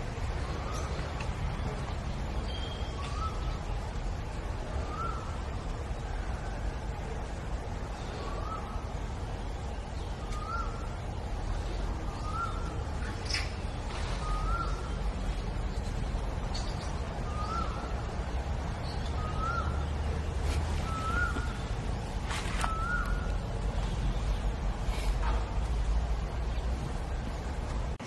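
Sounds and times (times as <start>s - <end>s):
low rumble of wind: 0.0s - 28.0s
bird calling: 2.4s - 3.6s, 10.0s - 11.0s, 11.7s - 15.1s, 16.5s - 18.2s, 18.8s - 23.9s.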